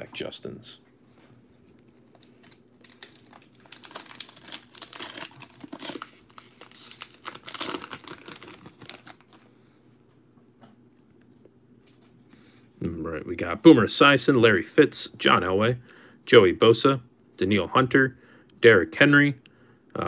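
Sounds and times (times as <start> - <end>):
foil pack tearing and crinkling: 2.2 - 9.4.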